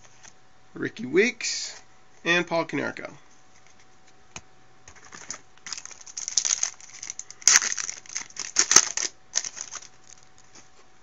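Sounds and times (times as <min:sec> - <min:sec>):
foil wrapper crinkling: 0:04.9 - 0:10.7.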